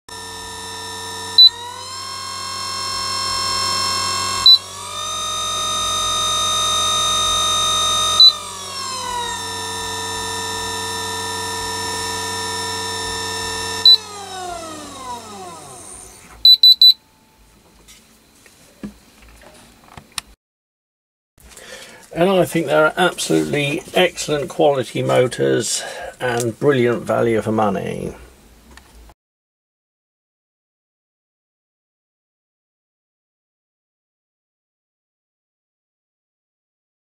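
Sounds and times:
electric motor whining: 0.1s - 16.7s
control panel beeps: 16.4s - 17.1s.

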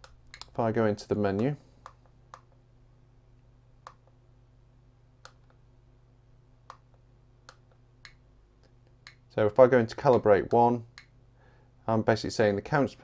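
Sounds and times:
faint sharp clicks: 0.0s - 0.6s, 3.8s - 4.2s
faint low hum: 0.0s - 13.0s.

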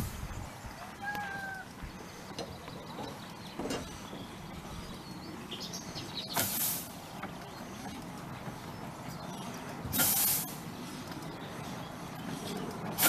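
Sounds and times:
birds chirping faintly: 0.0s - 13.0s
steam locomotive chuff: 6.2s - 7.8s, 9.9s - 10.7s, 12.4s - 13.0s.

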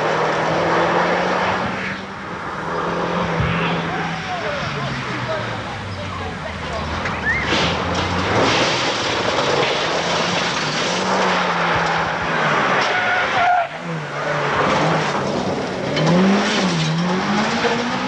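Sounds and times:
rally car engines revving: 0.0s - 18.0s.

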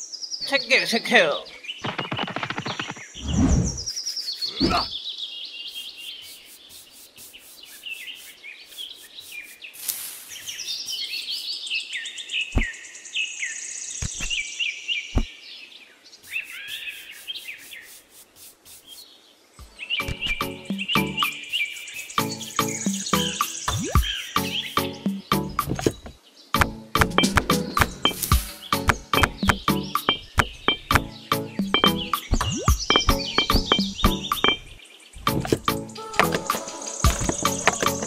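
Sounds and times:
birds chirping and singing: 0.0s - 18.0s, 18.9s - 38.0s
sharp taps: 25.6s - 36.4s.

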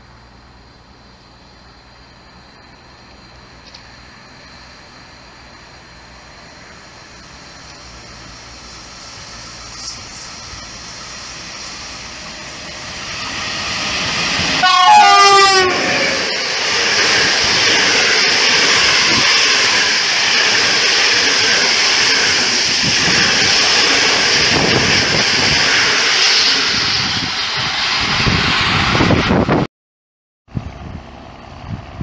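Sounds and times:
train wheels rumbling on rail: 0.0s - 29.7s
locomotive horn: 14.6s - 16.2s.

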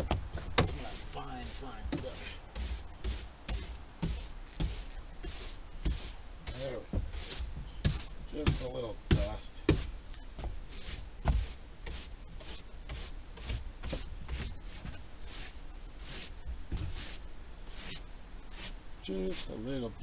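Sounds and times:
broom sweeping a floor: 0.6s - 9.9s, 10.6s - 19.6s
sharp knocks: 5.8s - 10.6s.

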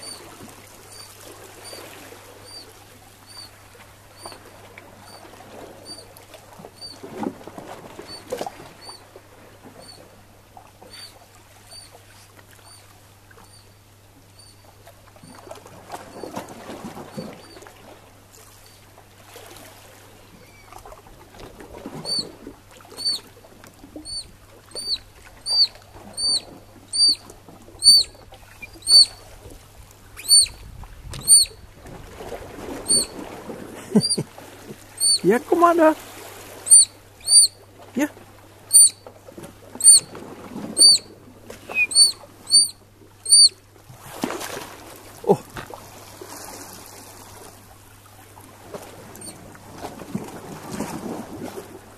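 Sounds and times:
water sloshing against rocks: 0.0s - 9.8s, 15.1s - 51.9s
otter pups whistling peeps: 5.8s - 6.0s, 6.8s - 7.0s, 10.9s - 11.9s, 12.6s - 12.8s, 22.0s - 22.3s, 23.0s - 23.3s, 24.0s - 29.2s, 30.2s - 30.6s, 31.2s - 31.6s, 32.8s - 33.1s, 34.0s - 34.2s, 35.0s - 35.2s, 36.7s - 37.6s, 38.7s - 39.0s, 39.8s - 40.1s, 40.7s - 43.6s.

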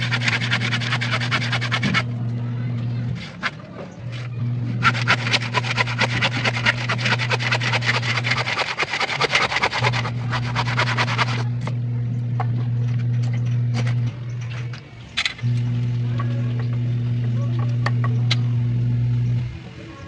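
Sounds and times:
hand saw cutting wood: 0.0s - 2.1s, 3.1s - 11.5s
steady low hum: 0.0s - 20.0s.

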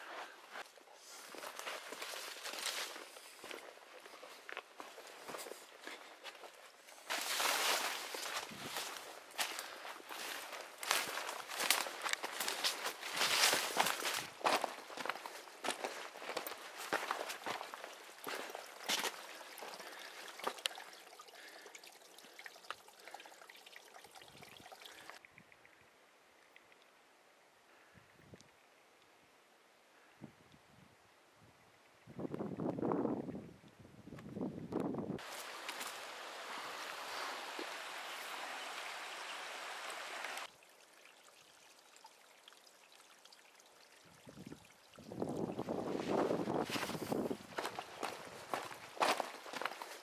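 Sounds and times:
water trickling and dripping: 1.4s - 27.1s, 35.2s - 50.0s
rushing water hiss: 35.2s - 40.5s.

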